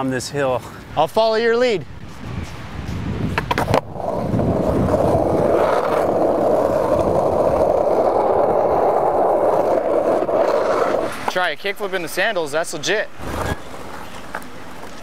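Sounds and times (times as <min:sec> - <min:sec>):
skateboard wheels rolling on pavement: 0:00.0 - 0:15.0
skateboard sharp clacks: 0:03.3 - 0:11.5.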